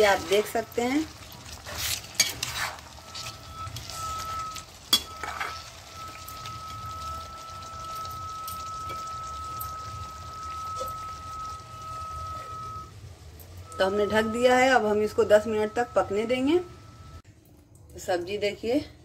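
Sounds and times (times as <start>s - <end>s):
ladle scraping pan: 0.0s - 6.3s
curry simmering and sizzling: 0.0s - 17.2s
steady high tone: 3.0s - 17.2s.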